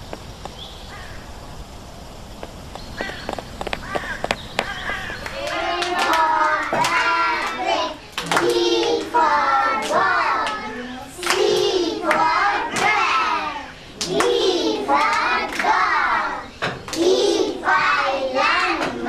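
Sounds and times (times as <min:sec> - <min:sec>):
hand claps: 0:04.6 - 0:09.2, 0:09.8 - 0:13.0, 0:15.0 - 0:15.8
children and woman singing: 0:04.7 - 0:19.0.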